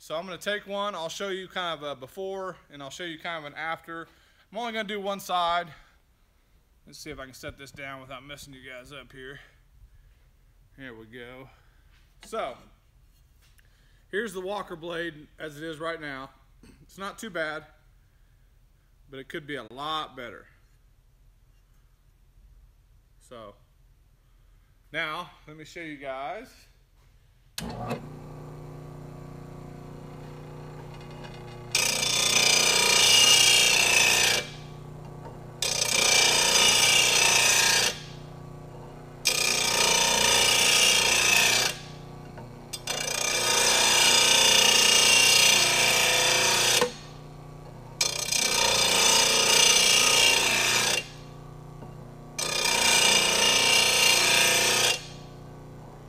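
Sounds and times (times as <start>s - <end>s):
blade grinding on grinding wheel: 27.6s - 56.0s
sharpener motor humming: 27.6s - 56.0s.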